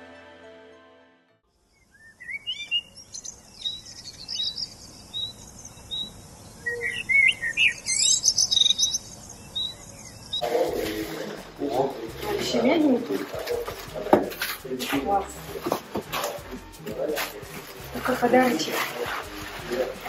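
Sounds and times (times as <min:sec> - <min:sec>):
songbirds singing: 0:01.5 - 0:10.5.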